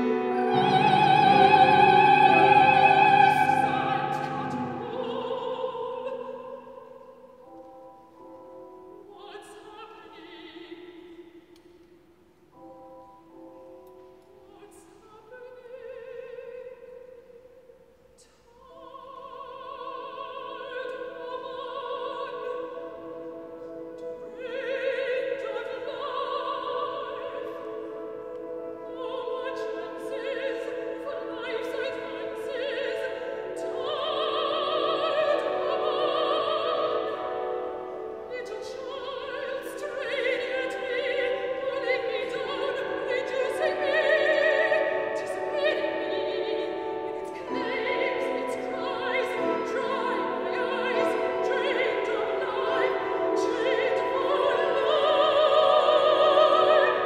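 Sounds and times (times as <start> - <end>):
piano accompaniment: 0.0 - 6.1
woman singing opera: 0.0 - 11.6, 14.2 - 17.4, 18.2 - 57.0.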